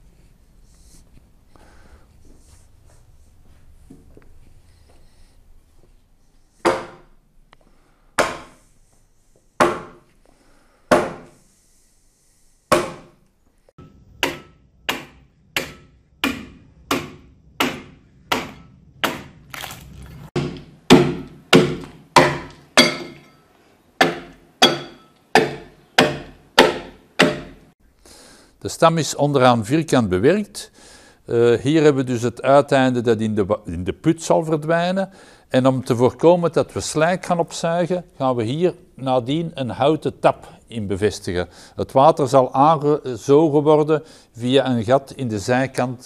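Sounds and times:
axe chopping wood: 6.6 - 7.0, 8.2 - 8.6, 9.6 - 10.0, 10.9 - 11.3, 12.7 - 13.1, 14.2 - 19.8, 20.4 - 23.2, 24.0 - 27.6.

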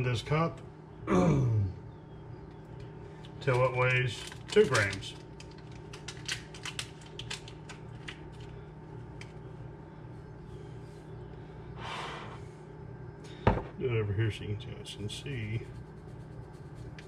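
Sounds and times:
steady low hum: 0.0 - 17.0
yeast packet crinkling: 3.2 - 9.4
granules shaken into cup: 3.3 - 8.5.

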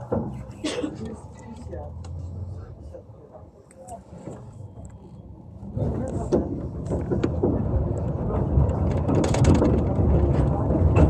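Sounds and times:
knocks and clicks from track: 0.0 - 0.6, 5.9 - 11.0
tram rumble on rails: 0.0 - 11.0.

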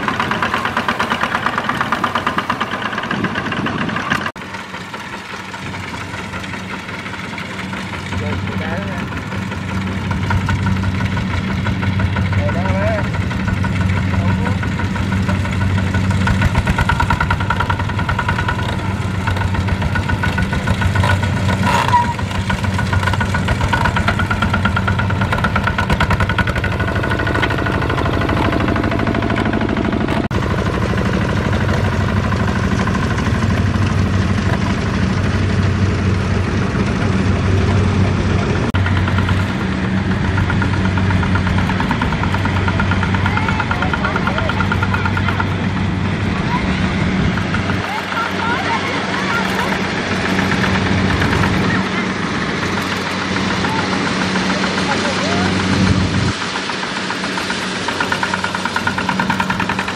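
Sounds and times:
diesel tractor engine chugging: 0.0 - 59.9.

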